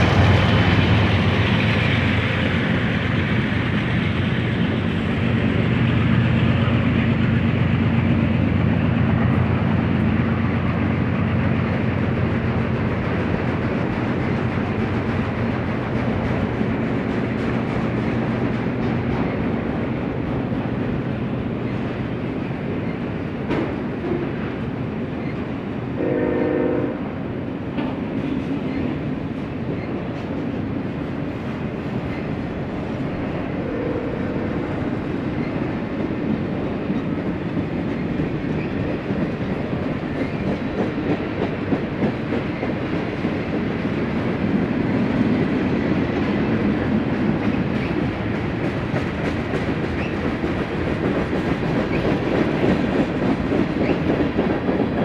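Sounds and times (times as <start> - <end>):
freight train wheels on rail: 0.0 - 55.0
train horn blast: 26.0 - 27.1, 33.6 - 34.7.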